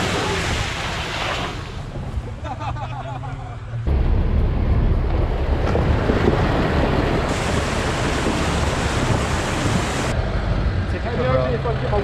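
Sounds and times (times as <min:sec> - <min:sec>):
wind buffeting microphone: 0:03.9 - 0:10.8
river water rushing and splashing: 0:05.8 - 0:10.2.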